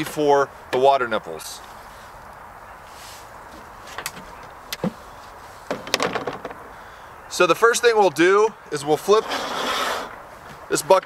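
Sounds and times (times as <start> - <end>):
faint outdoor background noise: 0.0 - 11.0
soft rustle: 1.6 - 5.8.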